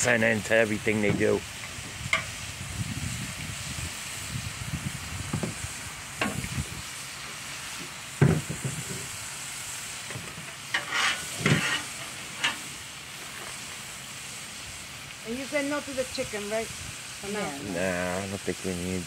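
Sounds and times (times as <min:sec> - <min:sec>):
meat sizzling on griddle: 0:00.0 - 0:19.0
bacon press knocking on griddle: 0:08.2 - 0:09.0
metal spatula scraping and tapping: 0:10.7 - 0:12.6.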